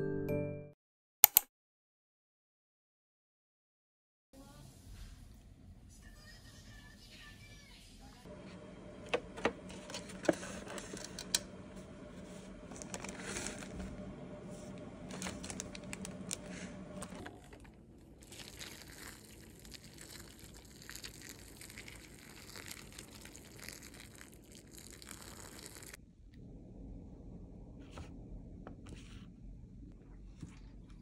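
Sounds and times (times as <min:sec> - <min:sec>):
hot water pouring into cup: 0:08.3 - 0:26.0
plastic film crinkling and tearing: 0:15.1 - 0:16.5, 0:17.4 - 0:26.0.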